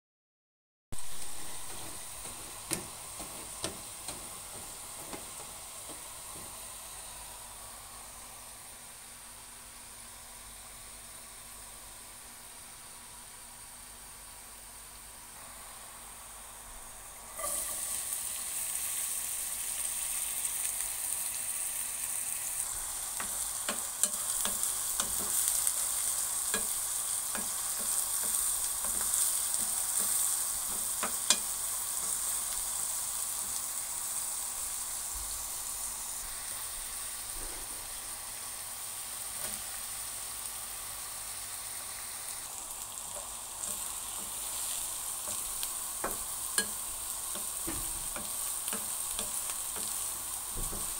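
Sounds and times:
onion sizzling in hot oil: 0:00.9 - 0:50.9
spatula scraping a pan: 0:01.2 - 0:06.6, 0:17.3 - 0:18.1, 0:23.1 - 0:32.6.

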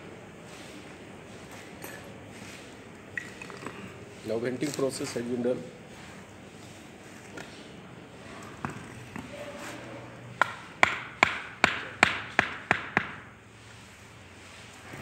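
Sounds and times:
hand tool tapping on wood: 0:10.4 - 0:13.3.

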